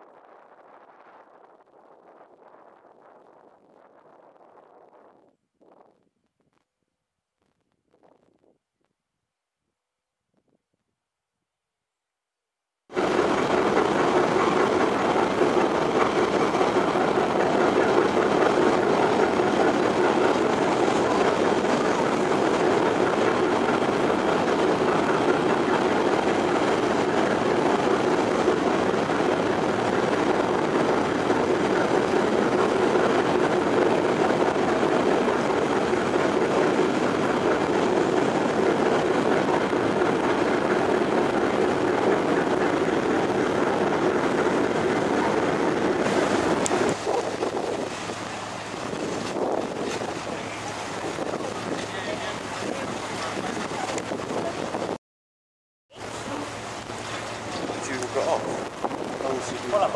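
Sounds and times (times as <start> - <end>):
boat engine drone: 12.9 - 55.0, 56.0 - 59.9
wind and water rushing: 12.9 - 55.0, 55.9 - 59.9.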